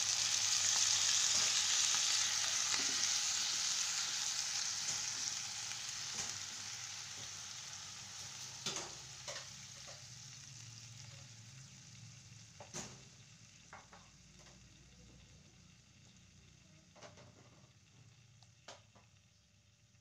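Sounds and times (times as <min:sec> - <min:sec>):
chicken sizzling in frying pan: 0:00.0 - 0:20.0.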